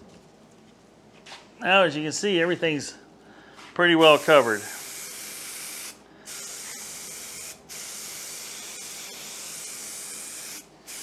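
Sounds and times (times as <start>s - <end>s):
aerosol spray hissing: 4.0s - 11.0s.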